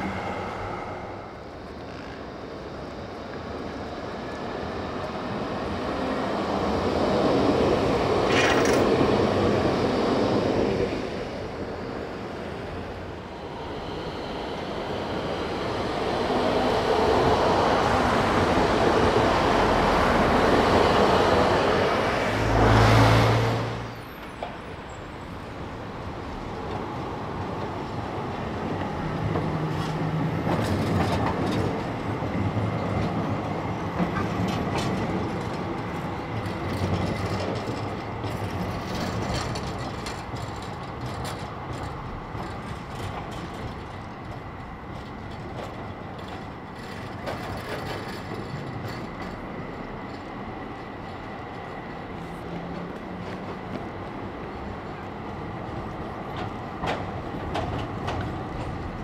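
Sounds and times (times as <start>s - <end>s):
tram rumble: 0.0s - 59.0s
wheels clicking over rail joints: 29.2s - 53.8s.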